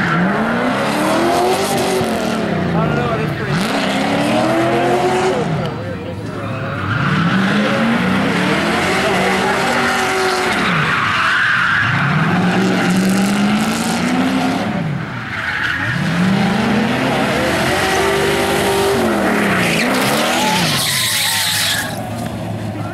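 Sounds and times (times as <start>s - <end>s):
car engine revving hard: 0.0s - 5.8s, 6.9s - 11.2s, 11.8s - 15.0s, 15.8s - 22.0s
tyres squealing: 15.2s - 22.4s.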